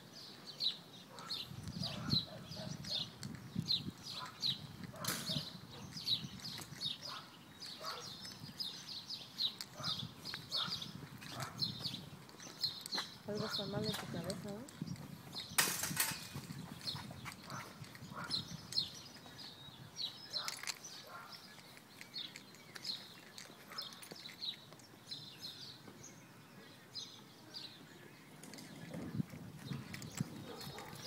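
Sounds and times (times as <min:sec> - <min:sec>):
footsteps on pavement: 0:01.1 - 0:26.1, 0:27.7 - 0:31.0.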